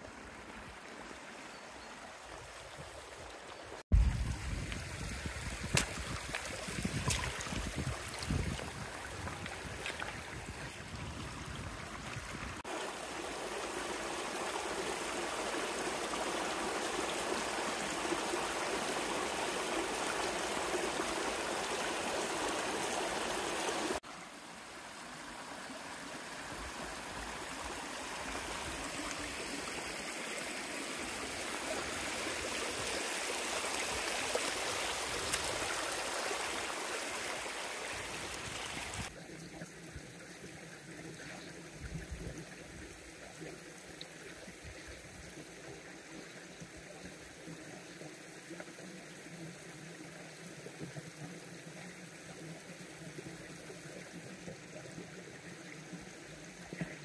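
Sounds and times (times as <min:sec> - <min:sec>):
stream rushing over stones: 0:00.0 - 0:39.2.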